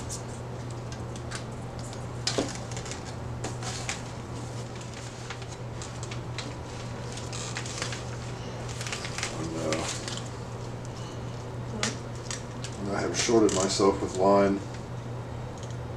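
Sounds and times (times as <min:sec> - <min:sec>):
dry moss crackling and rustling: 0:01.2 - 0:11.5.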